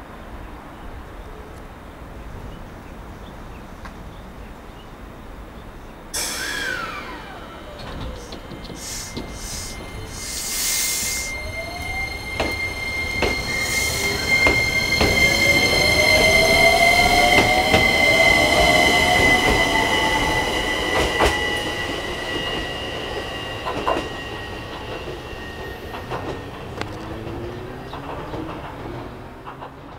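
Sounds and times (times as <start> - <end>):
short hiss: 6.2 - 6.9, 8.1 - 11.3
wheels clicking on track: 6.2 - 19.8, 20.9 - 29.9
steady high-pitched tones: 6.2 - 27.2
electric train motor whine: 6.2 - 27.6.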